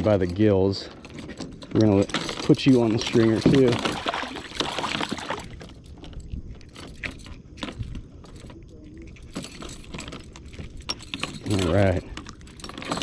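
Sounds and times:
fish splashing in water: 0:03.6 - 0:05.7.

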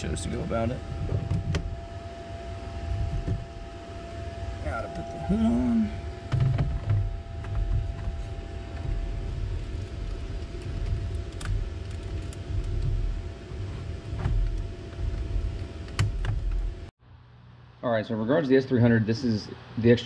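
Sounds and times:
continuous low rumble: 0:00.0 - 0:20.0.

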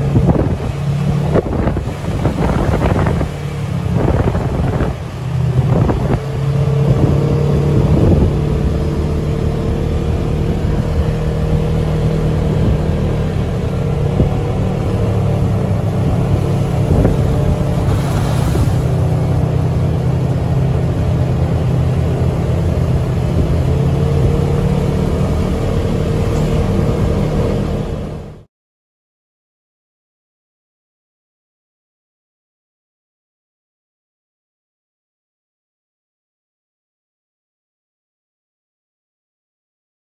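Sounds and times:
engine droning: 0:00.0 - 0:28.5
wind and road noise: 0:00.0 - 0:28.5.

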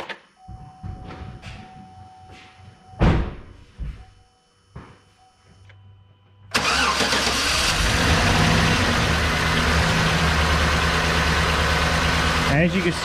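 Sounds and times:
cylinder misfiring: 0:06.5 - 0:12.9
car engine starting and idling: 0:06.5 - 0:13.0.

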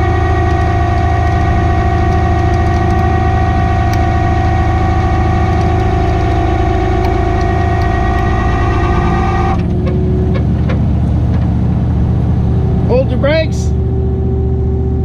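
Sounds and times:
truck engine running: 0:00.0 - 0:15.0
winch whine: 0:00.0 - 0:15.0.

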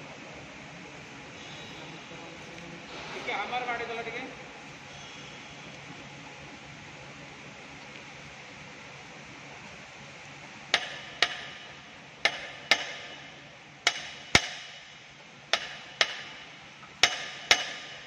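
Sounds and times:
hammer striking steel: 0:10.7 - 0:18.0.

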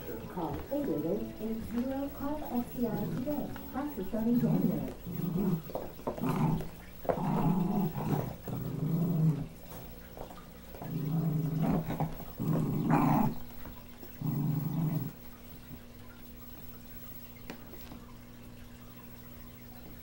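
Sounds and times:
small dog growling: 0:00.0 - 0:15.9.

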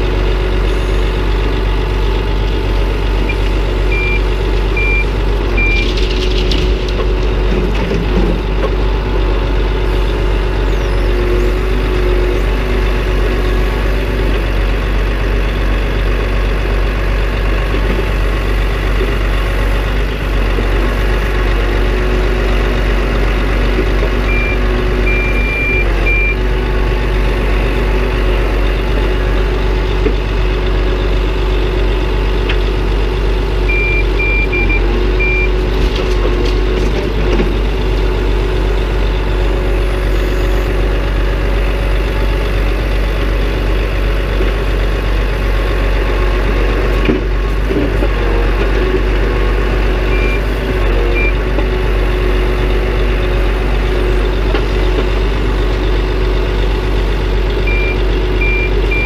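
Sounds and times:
lorry diesel engine running: 0:00.0 - 0:59.0
high reversing beeps: 0:03.3 - 0:06.0, 0:24.2 - 0:26.4, 0:33.7 - 0:35.5, 0:57.7 - 0:59.0.

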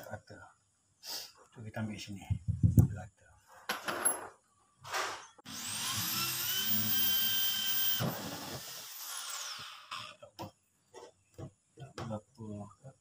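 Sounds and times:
drill motor winding down: 0:05.5 - 0:10.1
electric drill drilling into plastic: 0:05.5 - 0:10.1.

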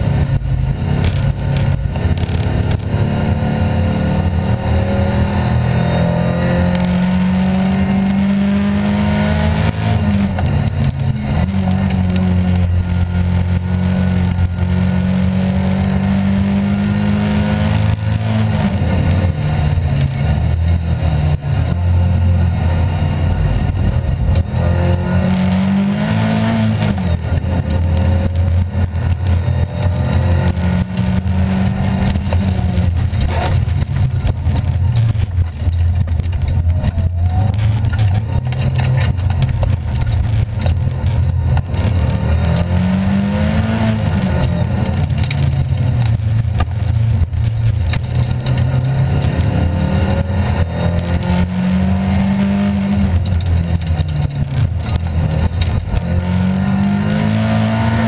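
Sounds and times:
rally car engine revving: 0:00.0 - 0:58.0
tyre and road noise: 0:00.0 - 0:58.0.

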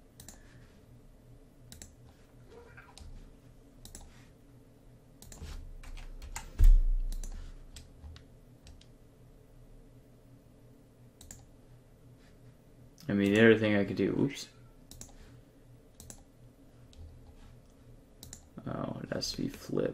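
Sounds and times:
mouse and keyboard clicks: 0:03.8 - 0:04.1.

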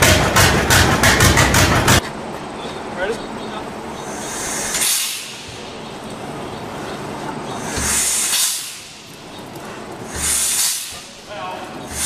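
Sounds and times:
tractor engine turned over by hand: 0:00.0 - 0:02.0
steady hiss: 0:01.8 - 0:12.0
low thump with hissing puff: 0:07.6 - 0:09.0, 0:10.1 - 0:11.2.

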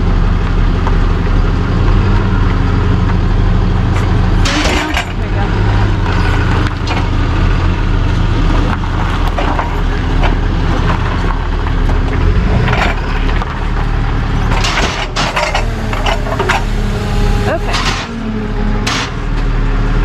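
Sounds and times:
truck engine idling: 0:00.0 - 0:20.0
knocks and clanks: 0:03.8 - 0:16.9, 0:17.5 - 0:19.6.

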